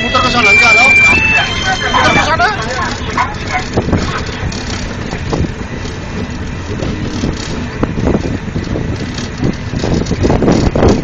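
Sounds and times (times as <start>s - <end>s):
open cart road noise: 0.0s - 11.0s
wind buffeting microphone: 0.0s - 11.0s.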